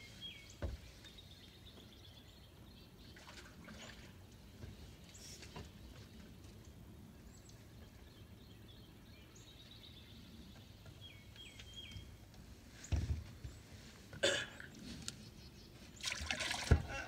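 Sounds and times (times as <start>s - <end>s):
outdoor background noise: 0.0s - 17.0s.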